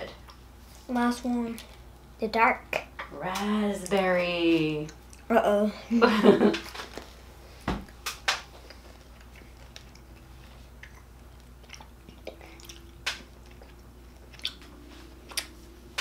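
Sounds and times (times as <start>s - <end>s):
mouth clicks and smacks chewing candy: 8.1s - 15.6s.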